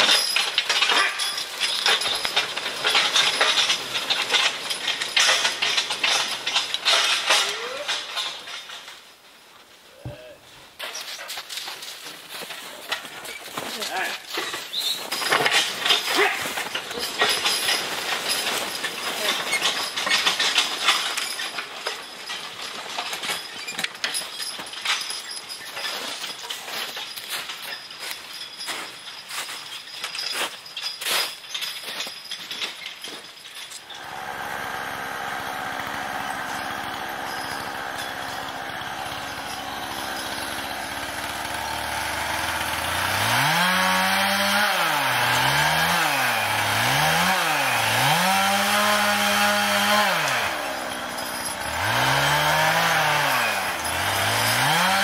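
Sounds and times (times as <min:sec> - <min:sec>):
chain and harness clinking: 0:00.0 - 0:09.1, 0:10.2 - 0:55.0
log crunching and scraping: 0:10.7 - 0:23.5, 0:25.7 - 0:55.0.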